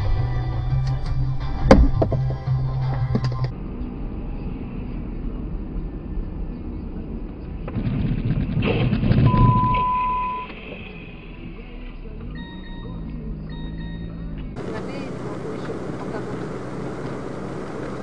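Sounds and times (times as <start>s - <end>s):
vehicle road noise: 0.0s - 18.0s
steady beep: 9.3s - 15.1s.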